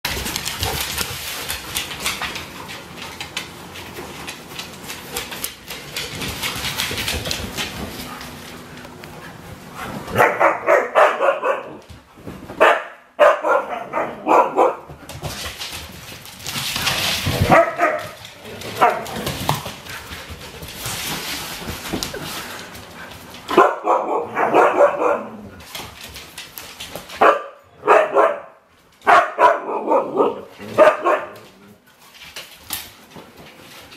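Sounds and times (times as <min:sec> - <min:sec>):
dogs scuffling: 0:00.1 - 0:12.8, 0:14.0 - 0:28.0, 0:28.7 - 0:33.9
dogs barking: 0:10.1 - 0:11.8, 0:12.6 - 0:14.9, 0:17.5 - 0:19.1, 0:23.5 - 0:25.4, 0:27.2 - 0:31.4.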